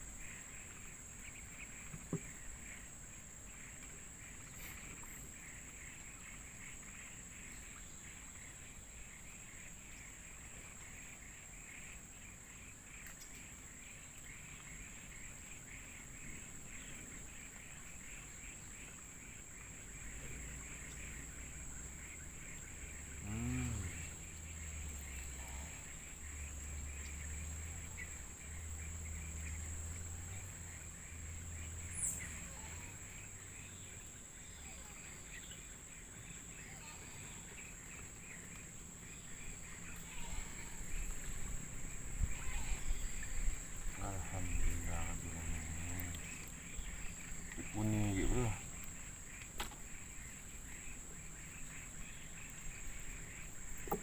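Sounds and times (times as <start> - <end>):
rapid chirping of small animals: 0.0 - 54.0
high-pitched insect drone: 22.8 - 28.2, 39.6 - 48.9.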